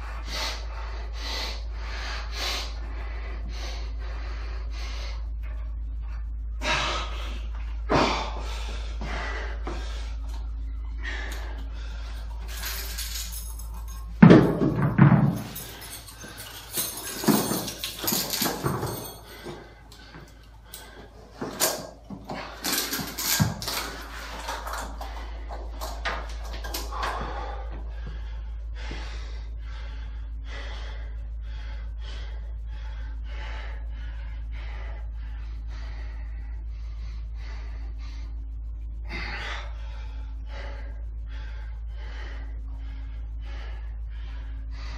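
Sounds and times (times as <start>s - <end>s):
man breathing heavily: 0.0s - 44.9s
gym equipment knocks and clatter: 12.4s - 28.2s.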